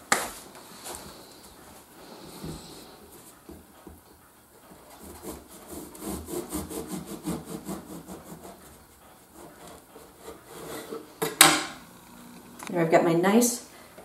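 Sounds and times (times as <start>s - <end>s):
bread knife sawing through crust: 4.9s - 11.2s.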